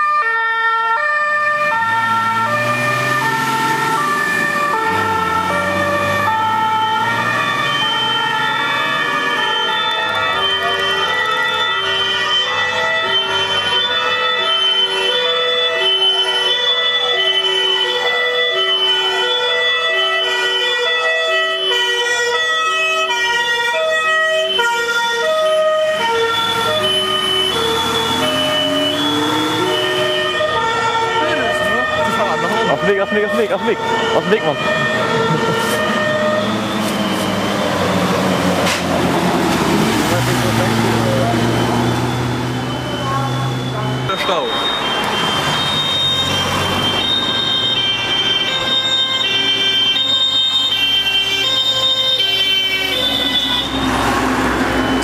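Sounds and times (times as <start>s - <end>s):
vehicle engine and tyre noise: 0.0s - 14.2s, 21.6s - 55.0s
two-tone emergency sirens: 0.0s - 55.0s
truck diesel engine running: 26.0s - 46.9s.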